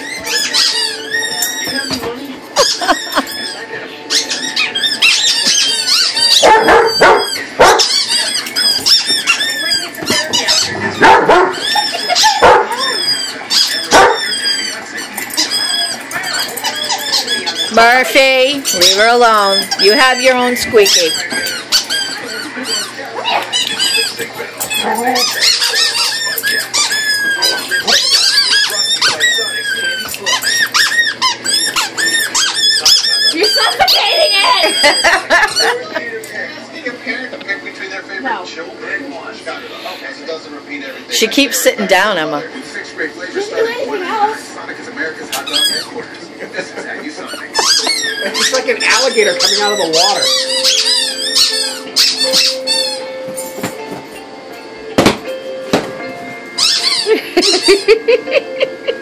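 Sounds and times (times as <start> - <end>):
rubber chicken toy squeaking: 0.0 - 2.0, 2.6 - 10.8, 11.5 - 17.8, 18.6 - 35.6, 45.4 - 45.9, 47.5 - 53.1, 56.6 - 57.8
dog barking: 6.3 - 8.0, 10.6 - 11.7, 12.3 - 12.8, 13.9 - 14.3.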